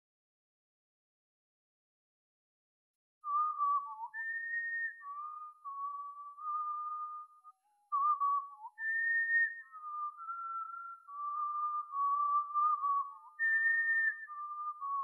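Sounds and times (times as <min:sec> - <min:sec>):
person whistling a slow melody: 0:03.2 - 0:15.0.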